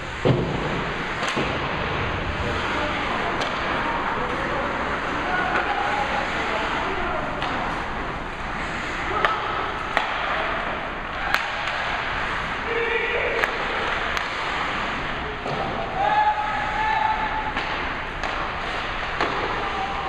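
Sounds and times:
hockey sticks clacking on puck: 0:03.3 - 0:12.6, 0:13.4 - 0:16.1, 0:17.1 - 0:20.0.

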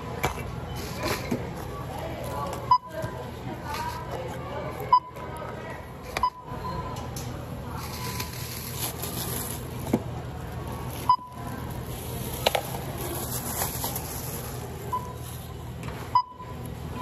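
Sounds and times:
steady store hum: 0:00.0 - 0:17.0
electronic checkout beeps: 0:02.6 - 0:03.2, 0:04.8 - 0:05.3, 0:06.2 - 0:06.9, 0:11.0 - 0:11.5, 0:14.9 - 0:15.3, 0:16.1 - 0:17.0
plastic bag rustling: 0:07.7 - 0:15.6.

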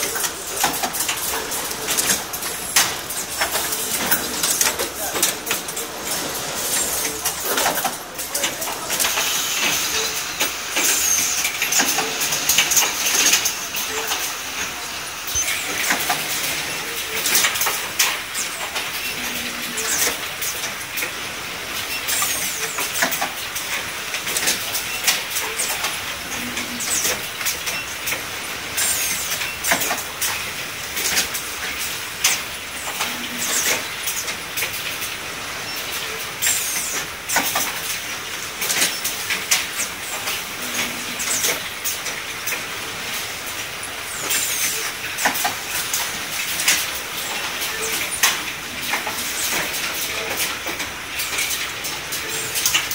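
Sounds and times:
machine clacks and clicks: 0:00.0 - 0:52.9
machine hiss: 0:00.1 - 0:23.2.

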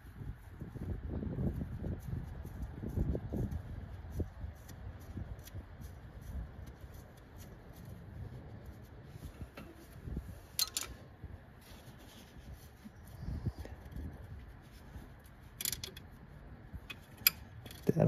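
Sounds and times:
wrench rubbing on engine bolt: 0:13.8 - 0:17.9.

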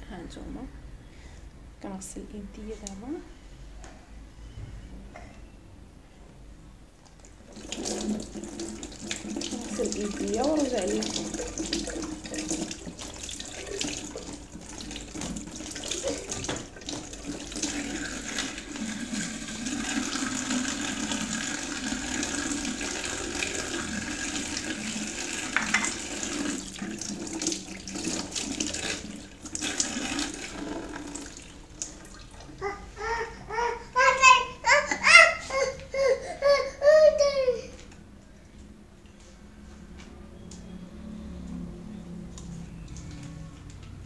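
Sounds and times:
tap water running into sink: 0:07.4 - 0:32.5.

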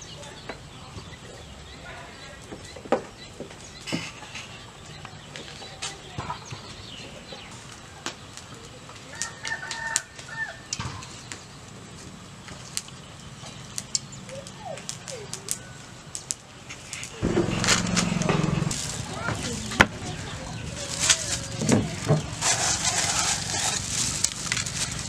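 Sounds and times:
chickens clucking: 0:17.2 - 0:23.9.

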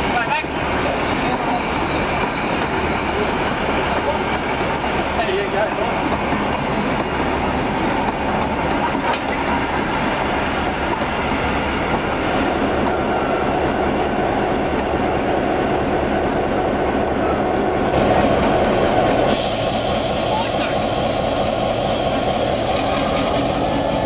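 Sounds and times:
steel wheels running on rails: 0:00.0 - 0:15.4, 0:17.2 - 0:24.0.

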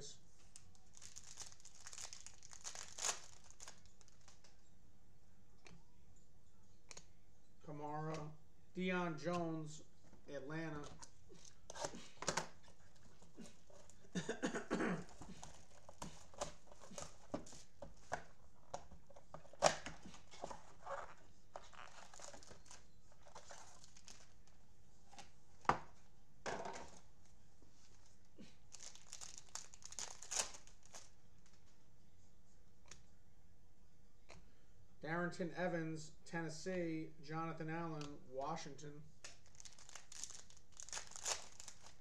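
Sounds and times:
packaging crinkling and tearing: 0:00.4 - 0:04.6, 0:19.2 - 0:24.6, 0:28.7 - 0:31.6, 0:39.2 - 0:42.0
cardboard and wrapper snapping: 0:18.1 - 0:20.9, 0:39.2 - 0:42.0.

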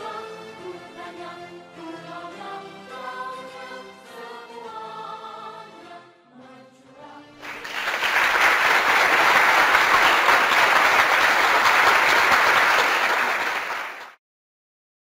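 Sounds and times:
crowd applause: 0:07.4 - 0:14.2.

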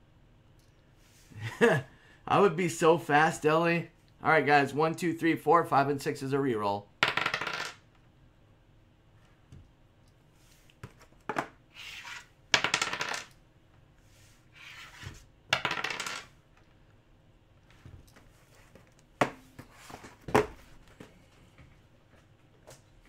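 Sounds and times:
die clattering on wooden table: 0:07.0 - 0:07.8, 0:12.5 - 0:13.4, 0:15.5 - 0:16.3
cardboard boxes scraping on table: 0:11.8 - 0:12.3, 0:14.1 - 0:15.3.

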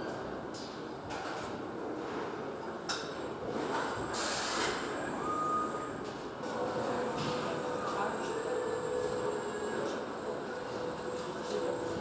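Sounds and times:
air hiss: 0:04.2 - 0:04.8
machinery humming: 0:04.9 - 0:12.0.

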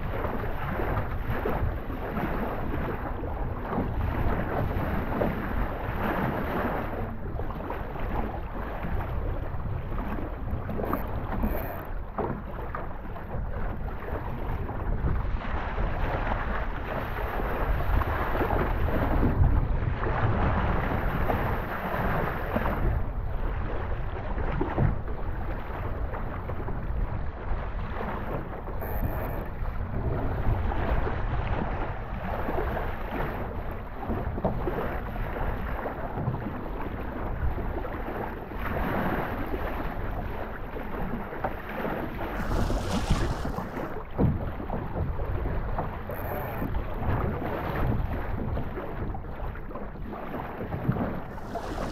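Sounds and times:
water rushing along boat: 0:00.0 - 0:51.9
wind buffeting microphone: 0:13.3 - 0:34.8, 0:42.0 - 0:50.0, 0:50.7 - 0:51.9.

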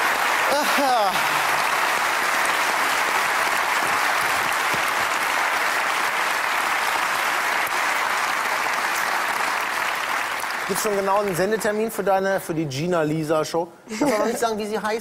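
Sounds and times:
audience applauding: 0:00.0 - 0:12.1.

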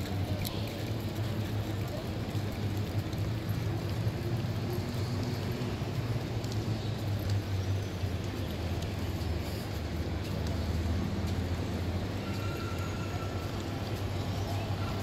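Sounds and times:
distant traffic rumble: 0:00.0 - 0:15.0
outdoor hubbub: 0:00.0 - 0:15.0
faint clicks: 0:04.8 - 0:11.7.

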